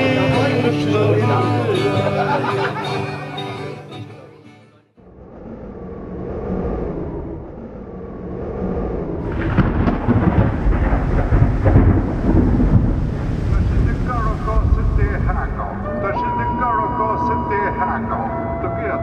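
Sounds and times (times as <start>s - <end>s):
acoustic guitar music: 0.0s - 4.9s
low rumbling thunder: 8.2s - 15.9s.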